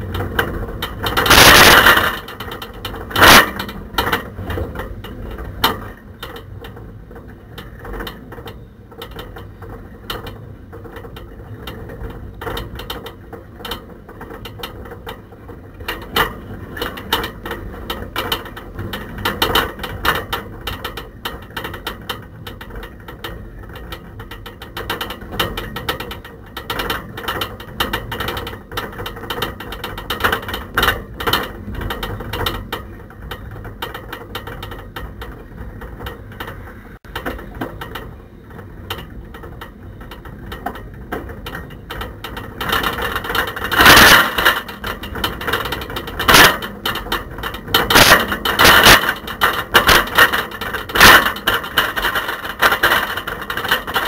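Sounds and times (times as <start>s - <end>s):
camera rattling in basket: 0.1s - 4.8s, 42.3s - 54.0s.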